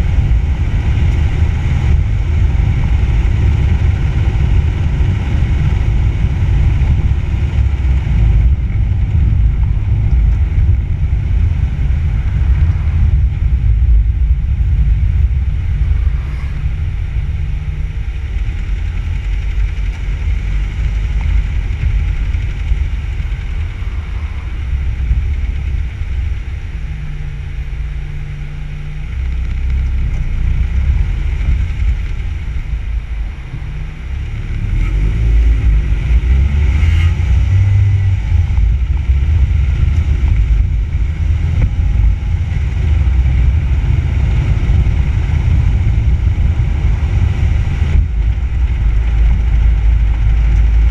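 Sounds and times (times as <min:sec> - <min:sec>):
wind buffeting microphone: 0:00.0 - 0:28.4, 0:29.0 - 0:50.9
road and engine rumble: 0:00.0 - 0:50.9.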